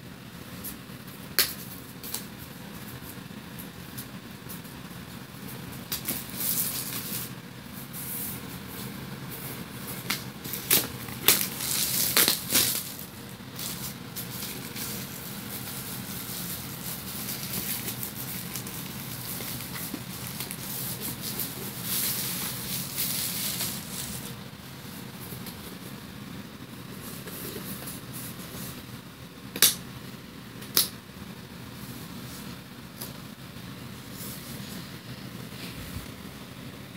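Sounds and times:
plastic wrap crinkling: 9.6 - 24.4.

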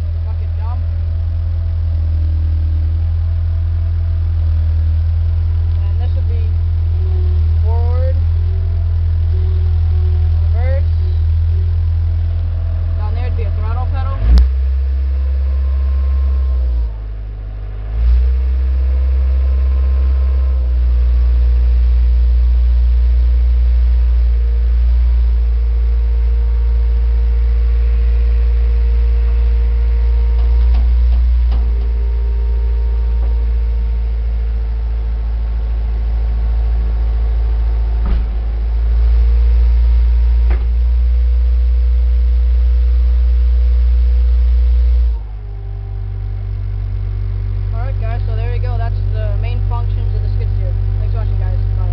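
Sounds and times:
diesel engine running: 0.0 - 51.9.

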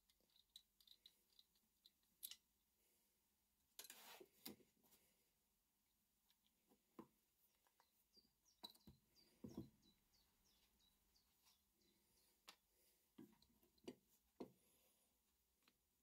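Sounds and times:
metal tool parts clicking and knocking: 0.0 - 2.4
bird chirping: 7.4 - 12.4.

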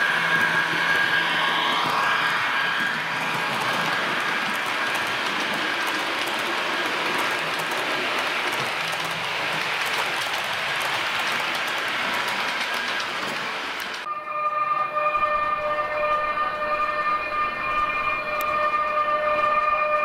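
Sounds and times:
model train whirring and rolling: 0.0 - 14.1
wheels clicking over rail joints: 1.8 - 14.1.

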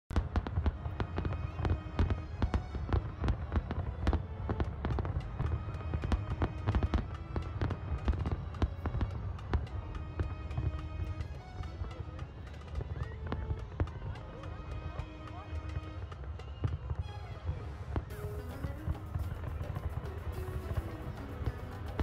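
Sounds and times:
fireworks banging: 0.1 - 17.1, 18.0 - 22.0
music with deep bass: 18.1 - 22.0.

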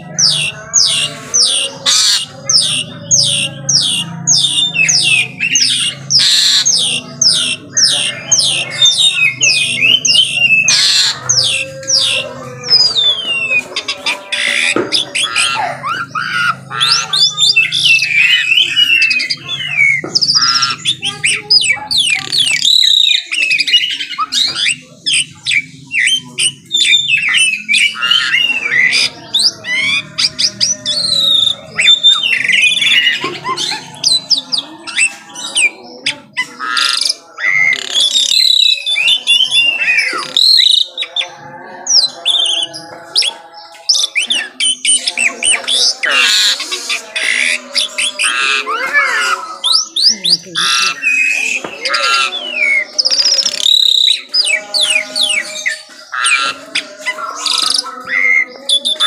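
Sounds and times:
bird singing whistled song: 14.4 - 59.0.

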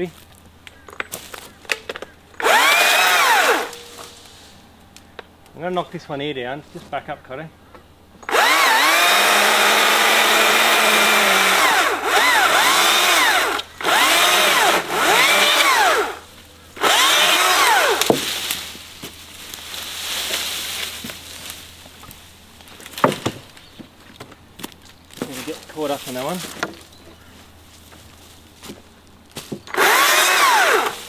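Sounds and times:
rustling of cut branches: 0.0 - 7.3, 8.3 - 31.0
battery chainsaw motor whine: 2.4 - 4.2, 8.2 - 18.6, 29.7 - 31.0.

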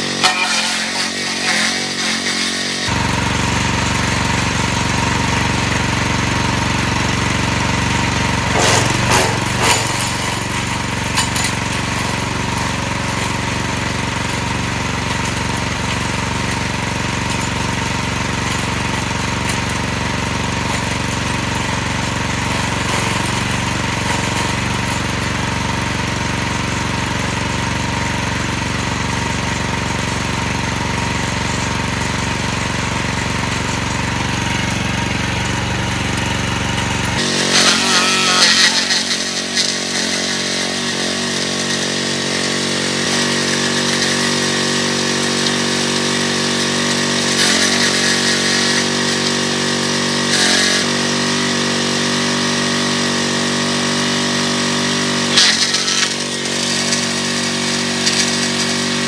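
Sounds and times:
wood chipper engine running: 0.0 - 59.0
branches chopping and crackling: 8.5 - 16.3, 37.1 - 42.2.

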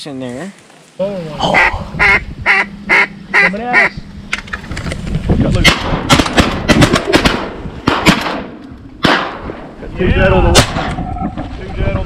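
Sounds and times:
wind rumble on microphone: 1.6 - 2.8, 3.9 - 8.0, 8.7 - 12.0
shotgun shots: 5.6 - 9.7, 10.5 - 11.0.

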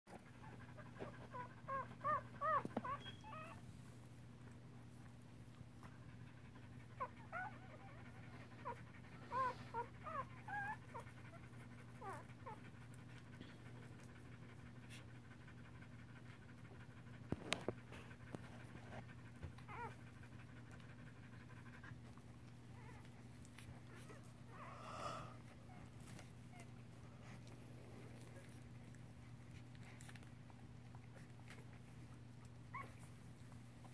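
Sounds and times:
dog whimpering: 0.2 - 3.6, 6.5 - 12.7, 19.4 - 21.9, 22.7 - 28.6, 32.7 - 33.1.

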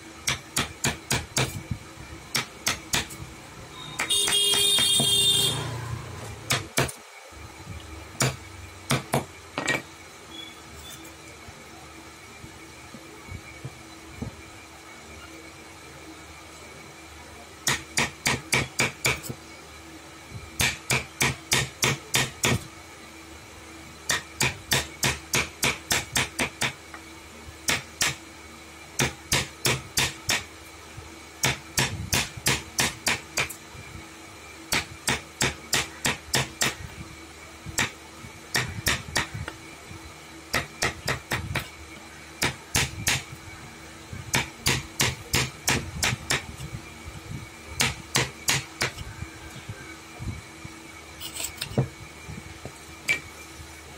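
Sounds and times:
hammer blows: 3.8 - 7.0.

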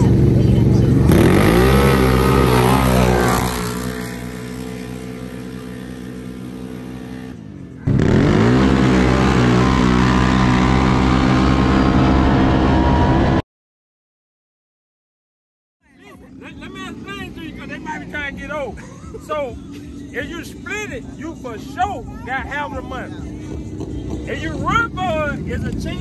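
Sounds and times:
quad engines revving: 0.0 - 13.4.

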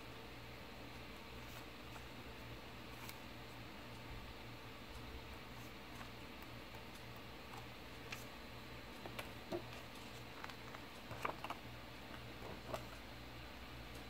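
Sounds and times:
paper rustling: 9.0 - 13.0.

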